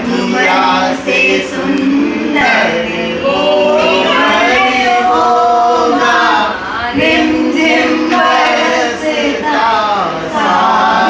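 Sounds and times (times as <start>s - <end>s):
man and woman singing together: 0.0s - 11.0s.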